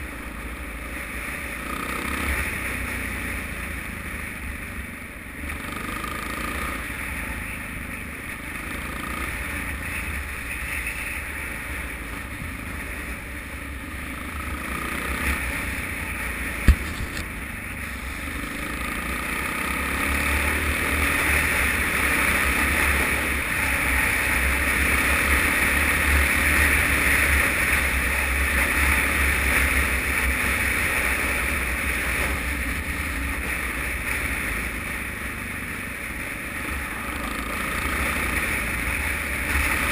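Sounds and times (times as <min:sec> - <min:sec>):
motorcycle engine rumble: 0:00.0 - 0:39.9
sharp knock: 0:16.6 - 0:17.2.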